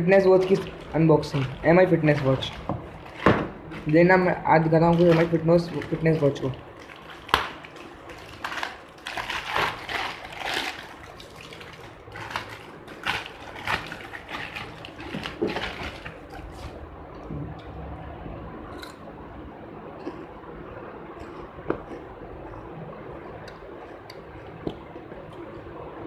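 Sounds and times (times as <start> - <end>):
plastic bag crinkling: 0.0 - 16.8.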